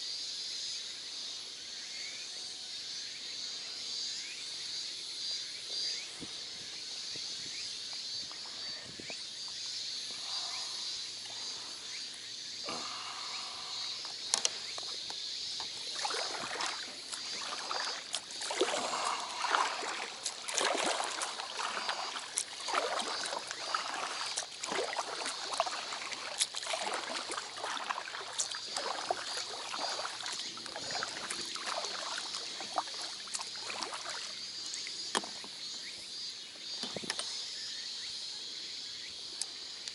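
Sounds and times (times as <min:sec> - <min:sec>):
high insect buzz: 0:00.0 - 0:39.9
paddle splashing in water: 0:13.9 - 0:35.6.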